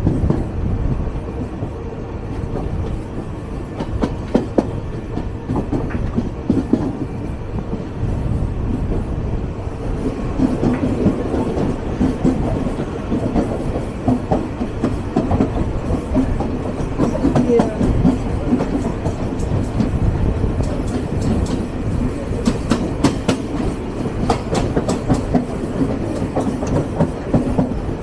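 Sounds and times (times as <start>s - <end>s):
train wheels rumbling on rails: 0.0s - 28.0s
sharp clicks and clacks: 20.6s - 21.7s, 22.4s - 27.8s.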